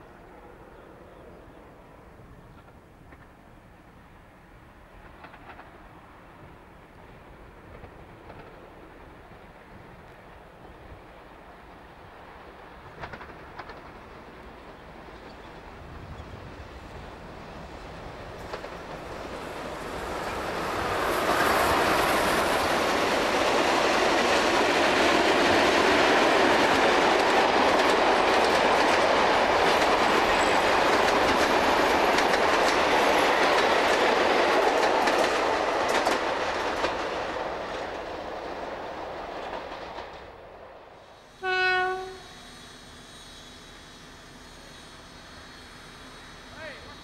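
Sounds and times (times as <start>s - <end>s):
train wheels clattering on rails: 2.4s - 3.6s, 4.8s - 46.4s
train whistle blast: 41.3s - 43.1s.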